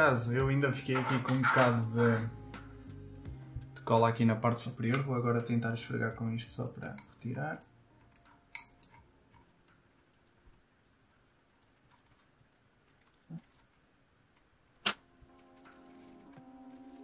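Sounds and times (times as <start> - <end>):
soft background music: 0.0 - 10.4, 14.9 - 17.0.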